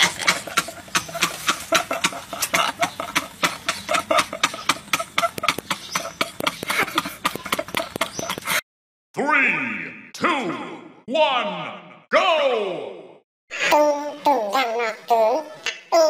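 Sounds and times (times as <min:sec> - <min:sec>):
men laughing hard: 0:00.0 - 0:08.6.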